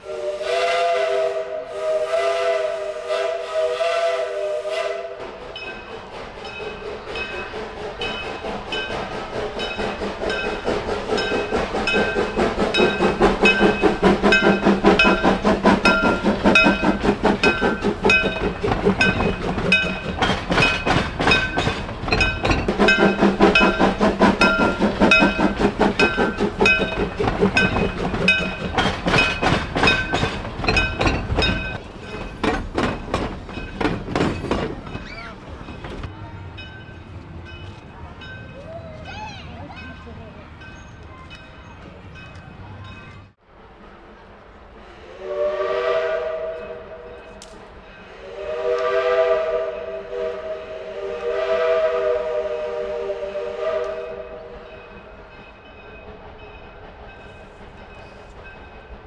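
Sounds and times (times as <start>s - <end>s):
steam whistle: 0.0s - 5.3s, 45.0s - 47.2s, 48.0s - 54.8s
locomotive exhaust beats: 0.0s - 36.1s, 44.8s - 59.0s
wheels clicking over rails: 5.4s - 36.1s.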